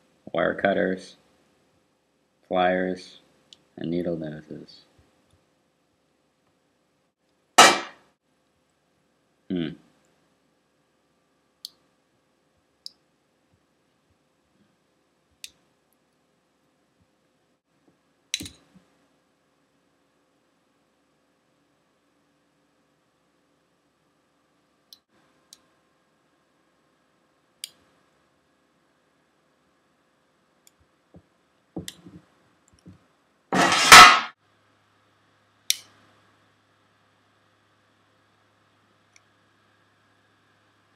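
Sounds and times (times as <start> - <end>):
sharp click: 18.3 - 18.7.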